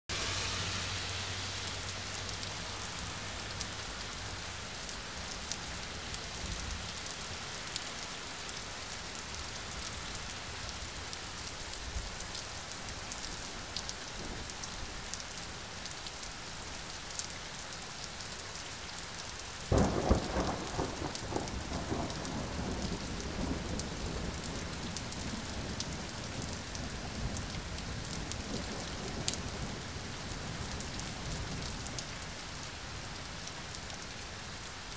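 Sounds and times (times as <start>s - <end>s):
steady rain falling: 0.1s - 34.9s
thunder clap and rumbling: 19.7s - 31.7s.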